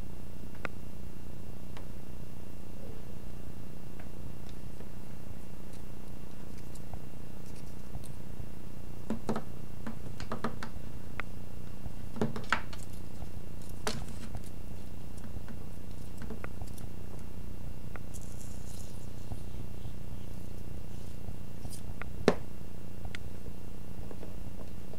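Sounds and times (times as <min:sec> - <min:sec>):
steady low hum: 0:00.0 - 0:24.9
scratchy rustle: 0:18.1 - 0:21.9.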